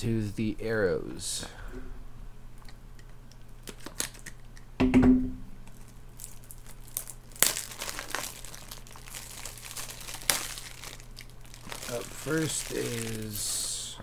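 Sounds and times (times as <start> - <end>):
plastic packaging crinkling: 3.6 - 4.4, 5.6 - 13.9.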